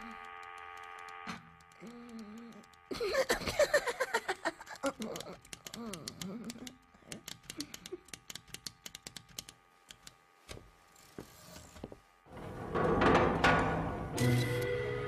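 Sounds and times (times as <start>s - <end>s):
clockwork mechanical clicking: 0.0s - 10.2s.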